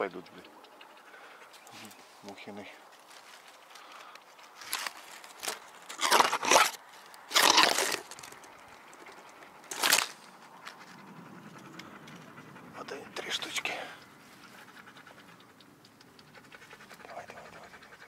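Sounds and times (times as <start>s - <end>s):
leafy branches rustling and scraping: 1.6s - 11.0s.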